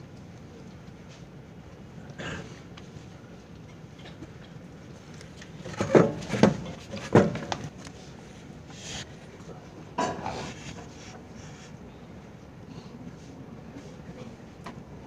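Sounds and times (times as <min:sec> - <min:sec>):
room noise: 0:04.8 - 0:12.1
sharp knocks and clatters: 0:05.6 - 0:07.8.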